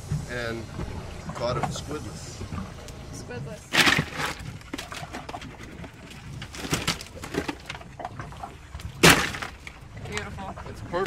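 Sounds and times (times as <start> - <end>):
fish and ice handled in cooler: 2.7 - 11.0
knocks and rustles: 3.7 - 9.8
loud thump of fish: 9.0 - 9.6.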